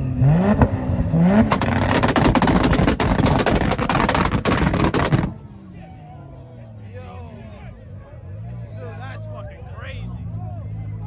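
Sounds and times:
car engine revving: 0.0s - 5.9s
exhaust pops and bangs: 1.4s - 5.4s.

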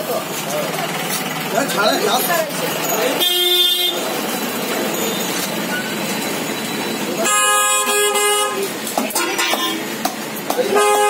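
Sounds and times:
street noise: 0.0s - 11.0s
horn blowing: 3.2s - 4.1s, 7.2s - 9.9s, 10.7s - 11.0s.

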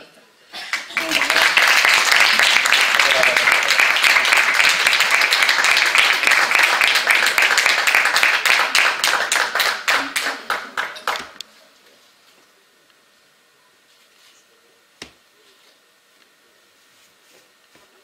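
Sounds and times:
audience applauding: 0.7s - 11.4s.

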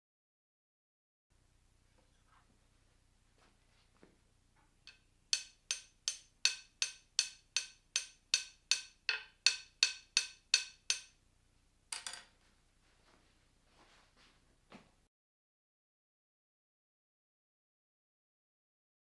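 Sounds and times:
mallet tapping wooden board: 4.8s - 11.2s.

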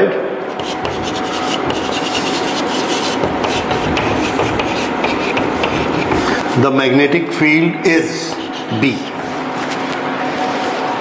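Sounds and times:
chalk writing on blackboard: 0.5s - 6.6s, 8.0s - 9.8s.

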